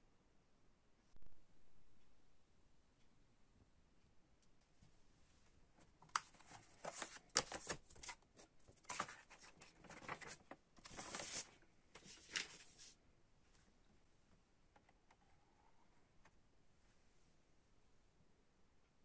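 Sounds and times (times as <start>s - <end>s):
paper sleeve rustling and sliding: 8.8s - 13.0s.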